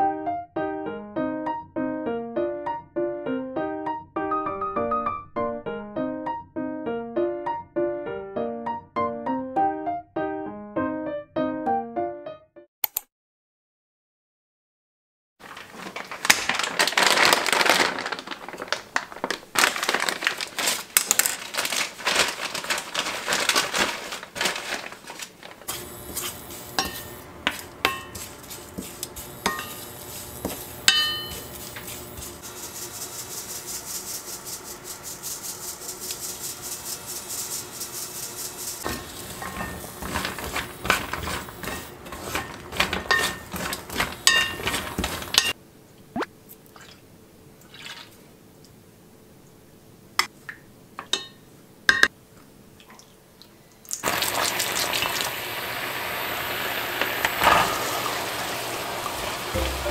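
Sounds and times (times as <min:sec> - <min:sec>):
plastic bag crinkling: 0:15.4 - 0:45.6
nuts scraped around pan: 0:25.7 - 0:45.6
spatula stirring in dry pan: 0:25.7 - 0:45.6.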